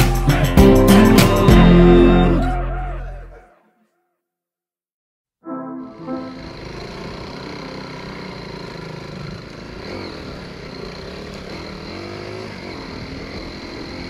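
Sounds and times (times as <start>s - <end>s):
dirt bike engine running: 6.4s - 14.0s.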